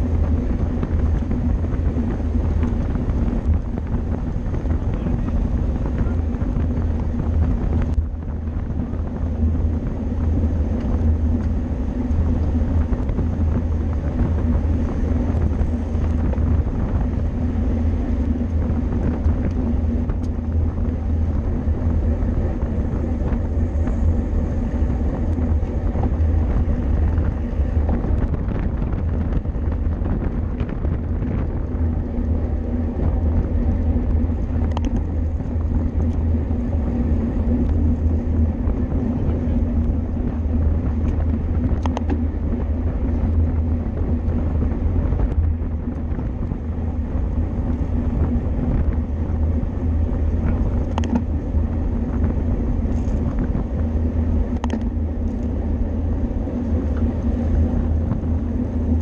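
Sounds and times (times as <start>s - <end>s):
bicycle tyres on road: 0.0s - 59.0s
wind rumble: 0.0s - 59.0s.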